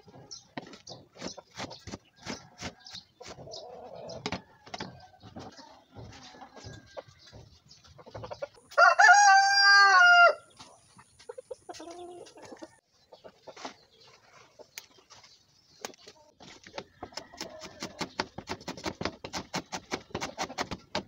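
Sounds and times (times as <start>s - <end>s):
rooster crowing: 8.7s - 10.4s.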